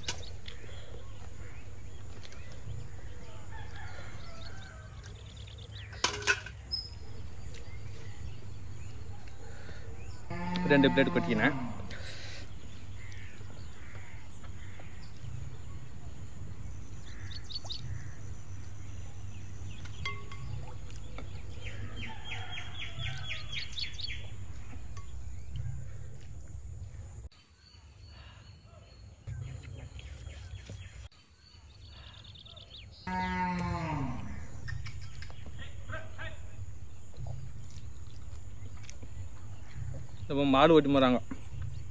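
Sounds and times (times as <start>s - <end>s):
low steady rumble: 0.0s - 5.4s, 6.8s - 27.3s, 34.0s - 41.9s
small birds chirping: 0.0s - 41.9s
cow mooing: 10.2s - 12.3s, 33.1s - 34.7s.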